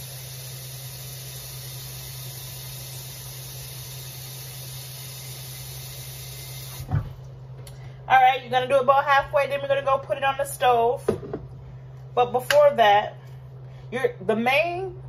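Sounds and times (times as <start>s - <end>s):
faucet water filling metal pot: 0.0s - 6.9s.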